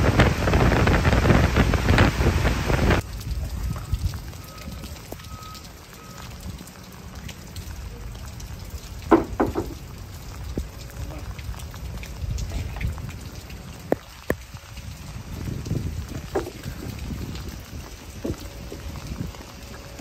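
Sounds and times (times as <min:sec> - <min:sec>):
wind rumbling on microphone: 0:00.0 - 0:05.4, 0:08.2 - 0:20.0
steady rain: 0:00.0 - 0:20.0
knocks of ladder being climbed: 0:09.1 - 0:09.8.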